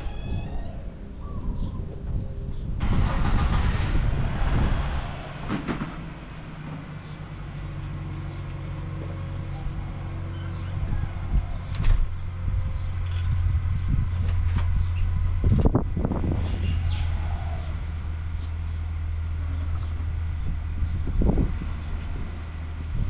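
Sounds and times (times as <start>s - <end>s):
sliding glass door rolling open: 2.8s - 6.9s.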